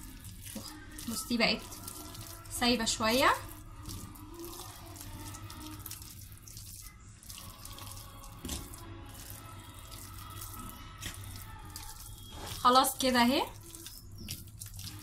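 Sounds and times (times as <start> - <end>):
spatula squelching mash in bowl: 0.0 - 15.0.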